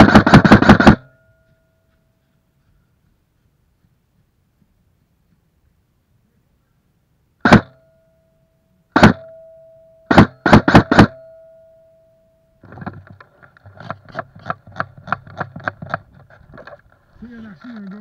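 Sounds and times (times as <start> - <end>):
airsoft gun shots: 0.0 - 1.1, 7.4 - 7.8, 8.9 - 9.3, 10.1 - 11.2
faint steady tone: 1.0 - 13.6.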